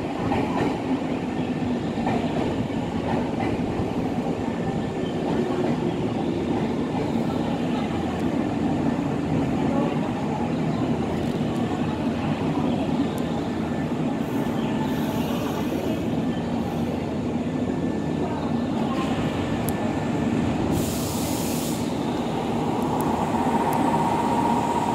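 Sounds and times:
train wheels rumbling on track: 0.0 - 24.9
burst of hiss: 20.7 - 22.0.

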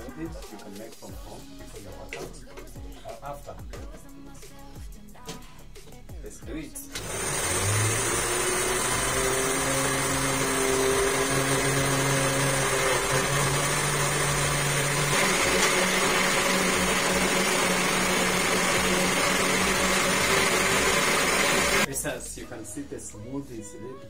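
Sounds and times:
blender motor whirring: 6.9 - 21.9.

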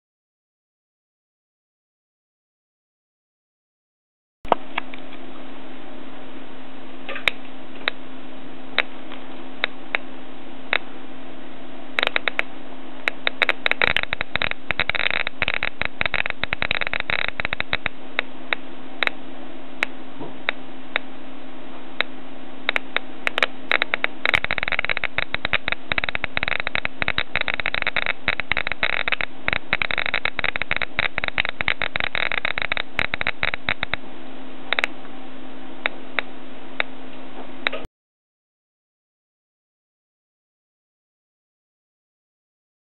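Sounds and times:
steady hum and hiss: 4.5 - 37.9
geiger counter clicking: 12.0 - 19.2, 22.7 - 34.0, 34.7 - 35.0.

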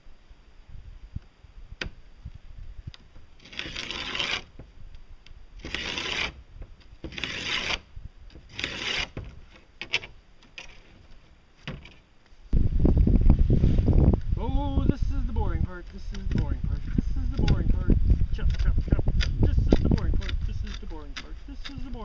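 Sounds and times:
fiberglass scraping: 3.1 - 4.8, 5.6 - 12.6, 15.1 - 22.0.

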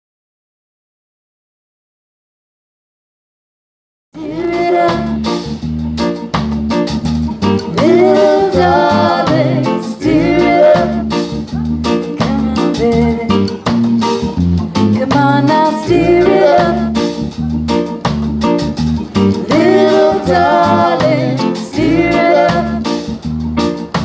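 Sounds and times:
woman singing: 4.2 - 5.3, 7.7 - 11.1, 12.1 - 13.5, 15.0 - 17.1, 19.5 - 22.9
live reggae band playing: 4.2 - 24.0.

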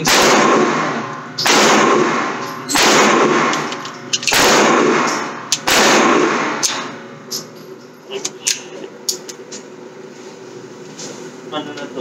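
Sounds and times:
gunshots with long echo: 0.0 - 3.7, 4.3 - 7.0.

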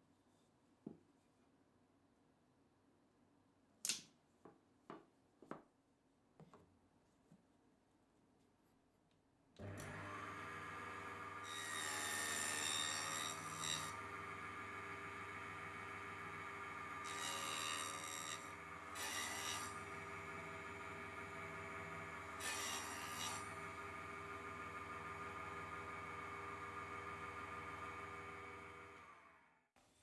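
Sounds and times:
table saw humming and whining: 9.6 - 29.6
saw blade cutting wood: 11.4 - 14.0, 16.8 - 23.7.

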